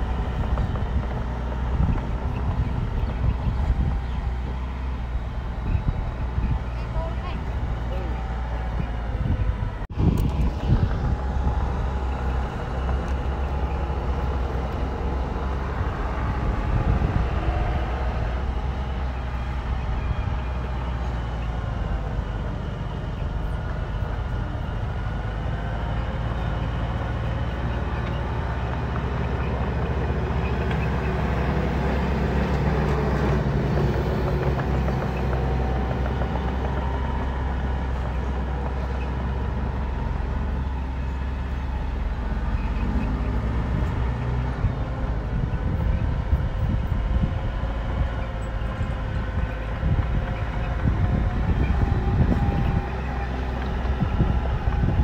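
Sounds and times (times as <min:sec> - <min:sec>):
diesel engines droning: 0:00.0 - 0:55.0.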